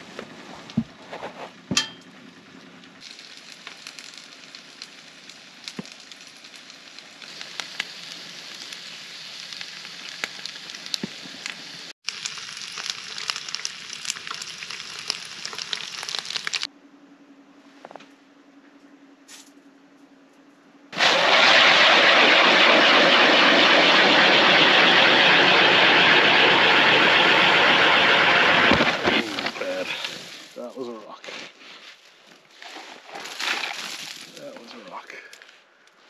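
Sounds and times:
food sizzling in a pan: 3.0 - 16.7.

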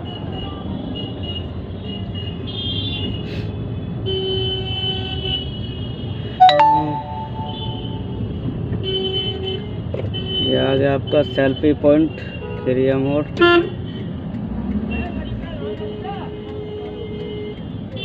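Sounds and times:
engine and traffic hum: 12.0 - 18.0.

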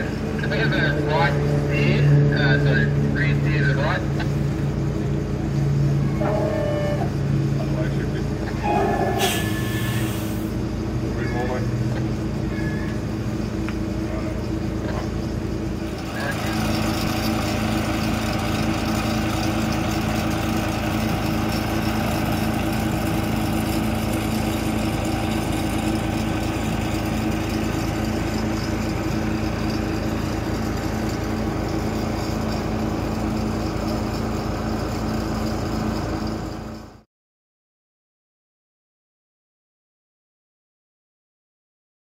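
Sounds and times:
truck diesel engine running: 0.0 - 37.0.

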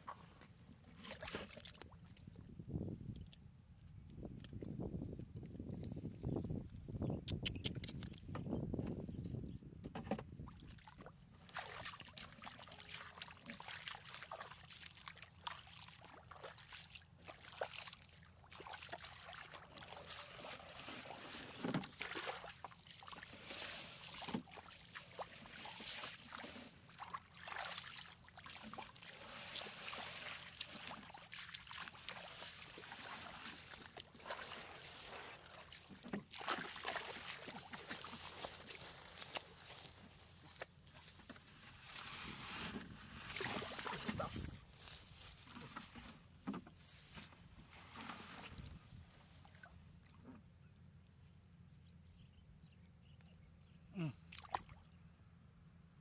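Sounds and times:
feet splashing through water: 0.9 - 2.3, 10.5 - 46.1, 54.3 - 54.8.

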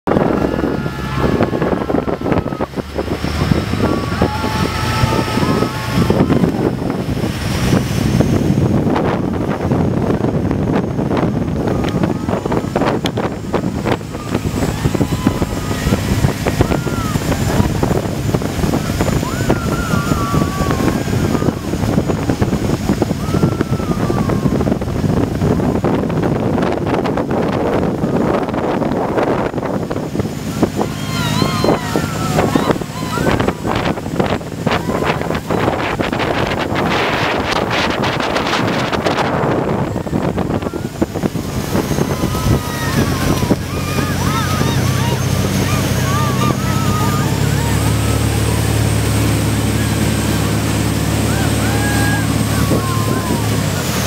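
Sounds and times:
speedboat engine: 0.0 - 54.0
water rushing: 0.0 - 54.0
wind buffeting microphone: 0.0 - 54.0
thin wavering high tone: 39.8 - 53.3.

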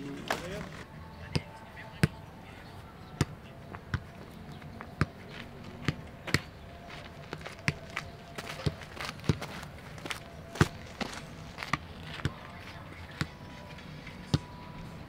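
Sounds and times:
foot kicking football: 3.2 - 12.4.

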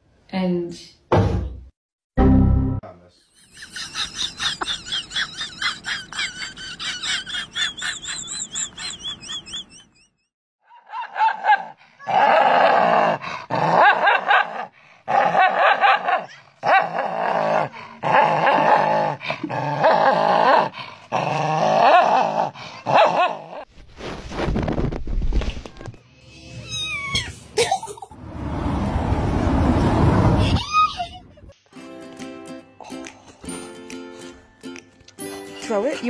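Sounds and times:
dog barking and snarling: 10.8 - 23.7.

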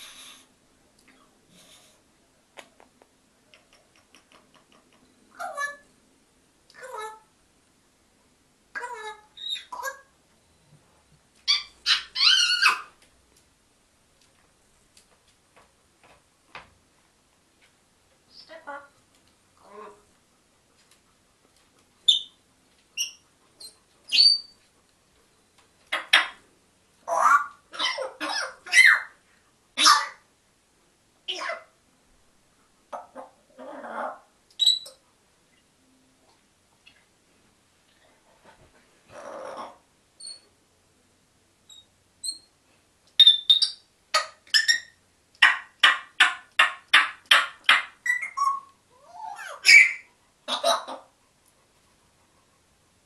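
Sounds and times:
parrot squawking: 5.3 - 5.8, 8.8 - 10.1, 11.5 - 12.9, 25.9 - 26.4, 27.1 - 29.1, 29.8 - 30.2, 43.2 - 51.1
parrot whistling: 47.3 - 48.7, 49.5 - 50.1
parrot whistles: 48.0 - 48.7.

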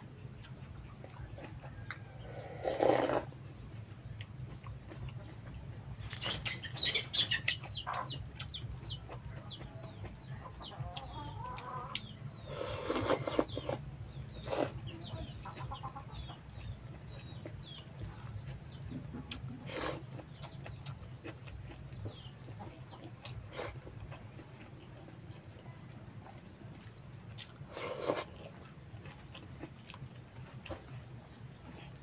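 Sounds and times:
chickens clucking: 0.2 - 31.8.

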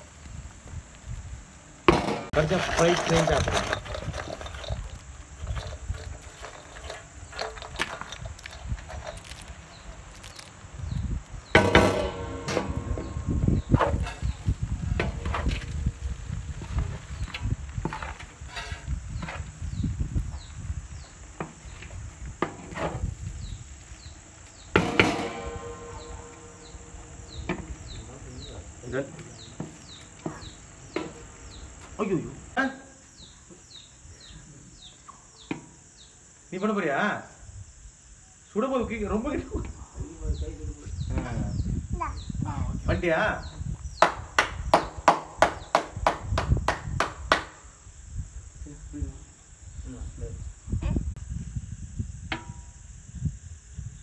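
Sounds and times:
crickets chirring: 0.0 - 54.0
spatula striking metal pan: 11.6 - 14.4, 24.8 - 27.9.

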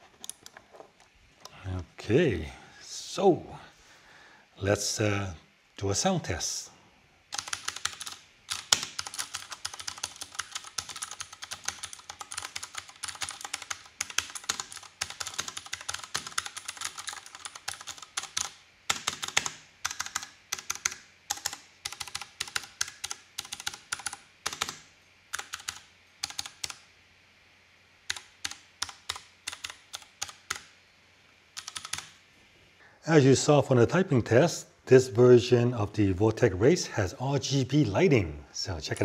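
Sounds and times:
mechanical keyboard typing: 7.3 - 26.8, 28.1 - 30.7, 31.6 - 32.2.

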